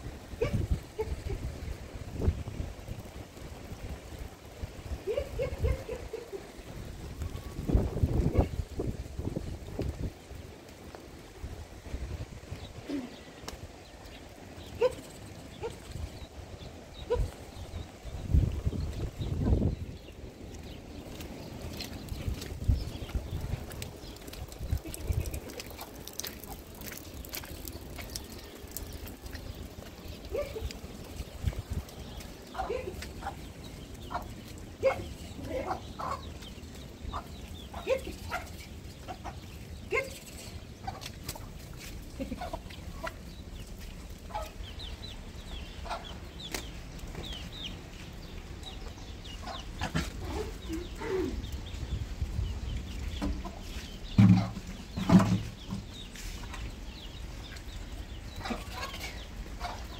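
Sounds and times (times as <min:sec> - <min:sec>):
chickens clucking: 0:32.6 - 0:39.6, 0:42.3 - 0:43.3, 0:48.8 - 0:51.4, 0:53.2 - 0:55.8, 0:57.6 - 0:59.9.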